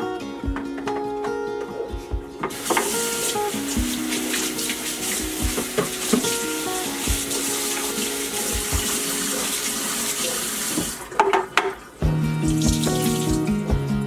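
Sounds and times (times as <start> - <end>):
background music with held notes: 0.0 - 10.6, 11.4 - 14.0
faucet running into metal sink: 2.5 - 11.9, 12.5 - 13.5
water splashing off plastic bin: 2.5 - 13.6.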